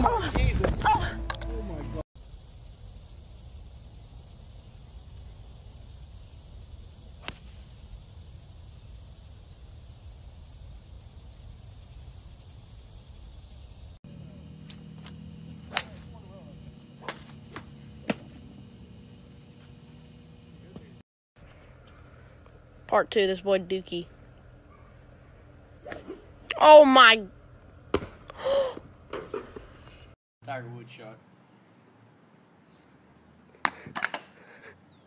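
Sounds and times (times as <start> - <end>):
low hum: 1.1 - 23.0
outdoor hiss: 2.2 - 14.0, 21.4 - 35.0
high insect-like whine: 2.2 - 30.1
golf club striking ball: 7.2 - 7.6.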